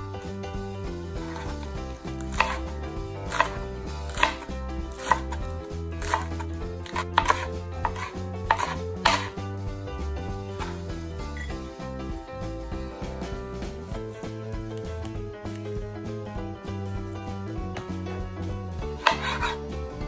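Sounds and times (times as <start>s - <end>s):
knife chopping on cutting board: 1.2s - 9.4s, 10.5s - 10.9s, 18.9s - 19.6s.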